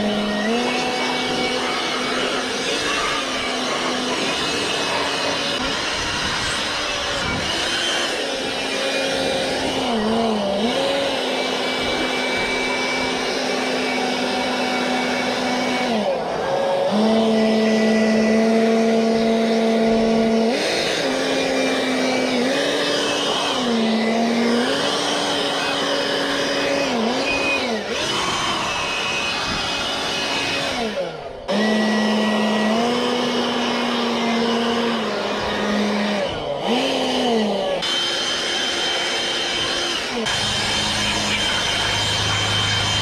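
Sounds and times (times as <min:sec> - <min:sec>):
electric blower motor whine: 0:00.0 - 0:43.0.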